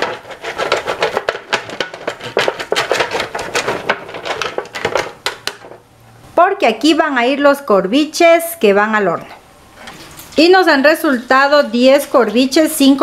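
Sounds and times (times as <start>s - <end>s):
brush scraping aluminium foil: 0.0s - 4.7s
foil crackling: 0.0s - 5.7s.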